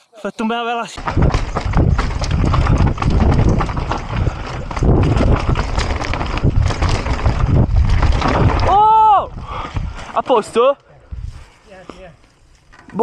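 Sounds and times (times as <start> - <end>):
bike rattling and knocking: 1.0 - 10.4
tyres rumbling over dirt: 1.0 - 10.6.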